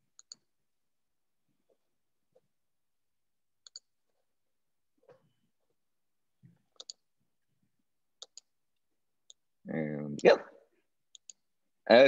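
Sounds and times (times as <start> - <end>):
computer mouse clicking: 0.1 - 0.5, 3.6 - 3.9, 6.7 - 7.1, 8.2 - 8.5, 11.1 - 11.4.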